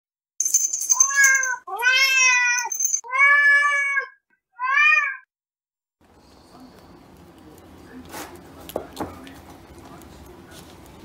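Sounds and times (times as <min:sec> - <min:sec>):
cat meowing: 0:01.0 - 0:05.3.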